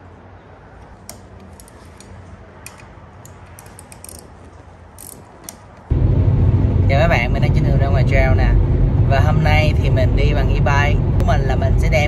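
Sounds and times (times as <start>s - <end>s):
small metallic clicks: 0.8s - 5.9s
hex driver tightening bolts: 1.0s - 5.9s
low steady hum: 5.8s - 12.0s.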